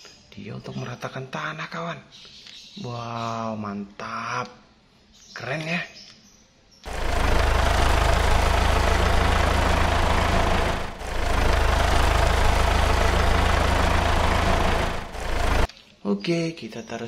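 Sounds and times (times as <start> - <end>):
heavy engine idling: 6.9 - 15.7.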